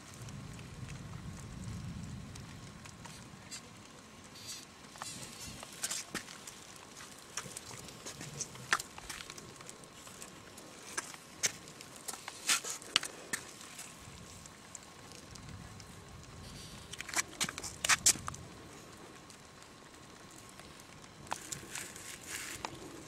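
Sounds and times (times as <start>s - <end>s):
faint steady hum: 0.0s - 23.0s
sharp clicks and crackles: 0.0s - 23.0s.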